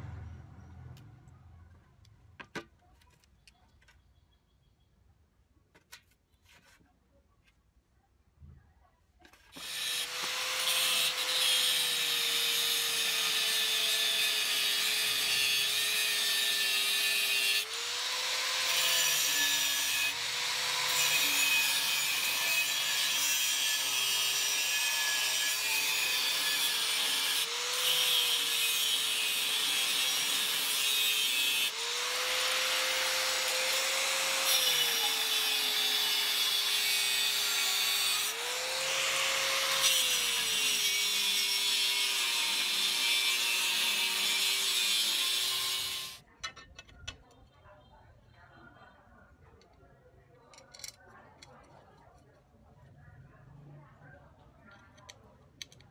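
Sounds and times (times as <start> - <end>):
angle grinder cutting metal: 9.5 - 46.2.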